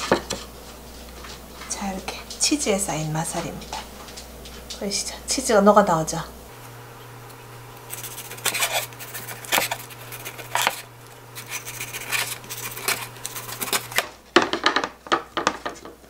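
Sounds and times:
knife scraping: 7.2s - 14.1s.

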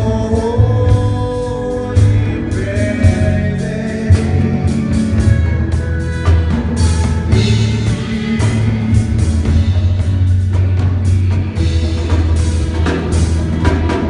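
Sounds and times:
live band playing: 0.0s - 14.0s
steady drum hits: 0.0s - 14.0s
strong low bass line: 0.0s - 14.0s.

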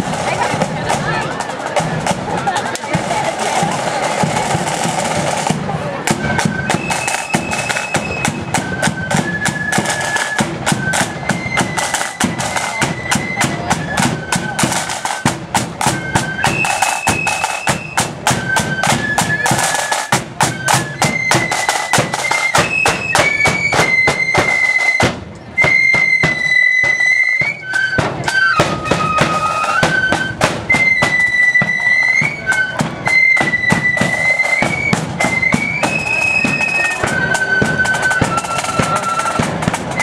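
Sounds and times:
shrill flute melody: 0.0s - 40.0s
side drum beats and rolls: 0.0s - 40.0s.

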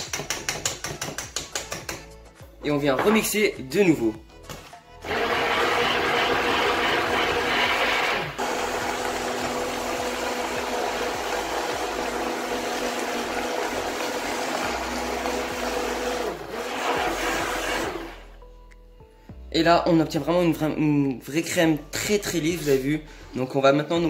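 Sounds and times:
blender swishing cream in steel bowl: 5.0s - 18.2s
immersion blender motor whine: 5.0s - 18.3s.

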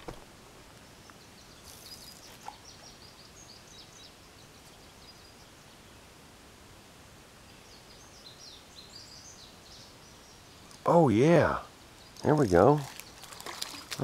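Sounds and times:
faint outdoor hiss: 0.0s - 14.0s
small birds chirping: 0.6s - 6.2s, 7.4s - 14.0s.

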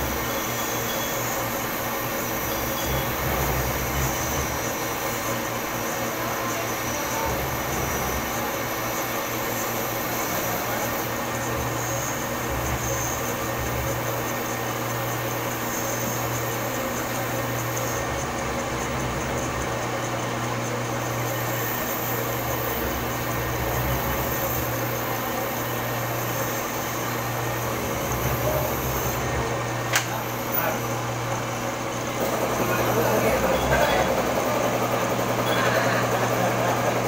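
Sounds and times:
faint high whine: 0.0s - 34.5s
metal lathe humming: 0.0s - 37.0s.

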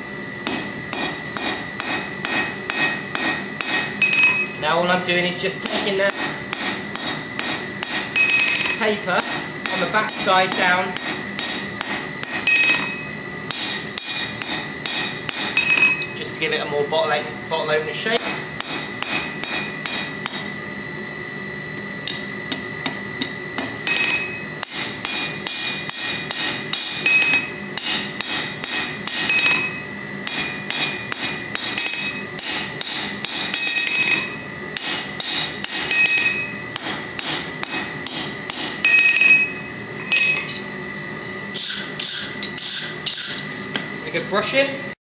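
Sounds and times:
hammer ringing on anvil: 0.4s - 4.6s, 5.6s - 16.2s, 18.2s - 20.5s, 22.1s - 40.7s.

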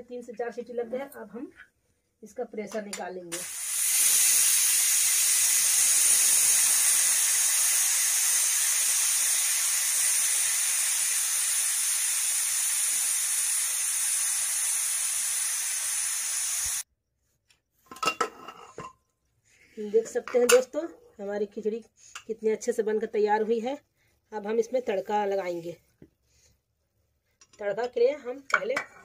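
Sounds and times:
pressure cooker steam hissing: 3.3s - 16.9s.

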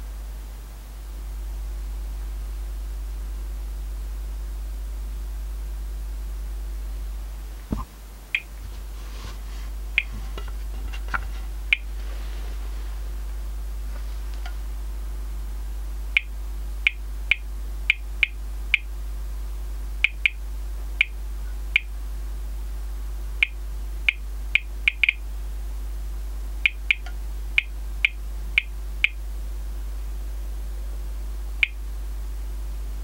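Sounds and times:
radiation meter chirping: 7.5s - 12.1s, 26.6s - 29.2s.

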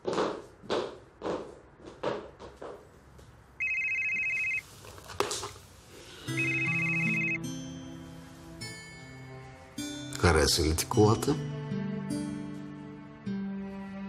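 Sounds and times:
telephone ringing: 3.6s - 4.6s, 6.3s - 7.5s.

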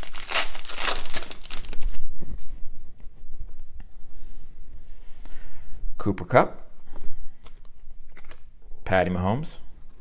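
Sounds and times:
foil wrapper crinkling: 0.0s - 2.0s.

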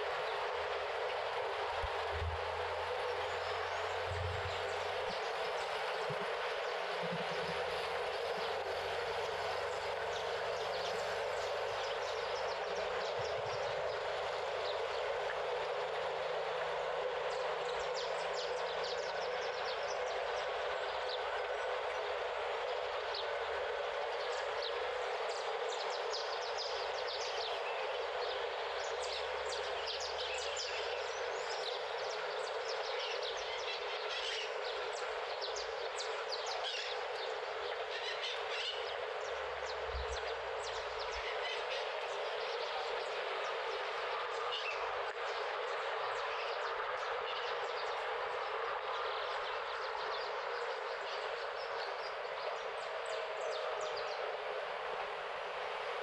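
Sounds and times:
steady rushing noise: 0.0s - 56.0s.

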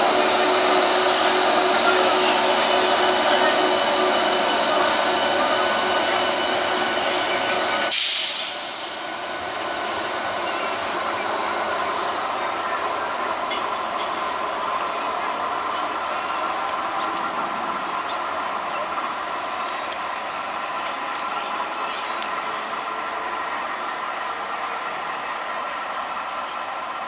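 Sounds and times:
electric train running: 0.0s - 27.0s
burst of hiss: 7.6s - 12.0s.

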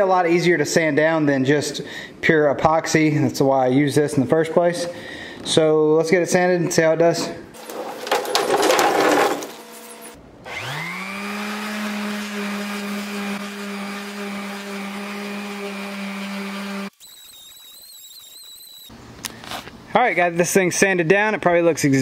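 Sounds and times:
electric orbital sander sanding: 10.5s - 18.8s
high-pitched whine: 16.9s - 18.9s.

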